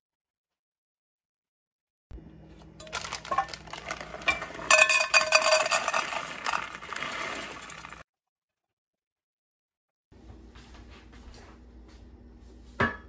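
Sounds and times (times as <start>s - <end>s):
chocolate chips rattling in metal cup: 2.8s - 8.0s
plastic bag crinkling: 2.8s - 8.0s.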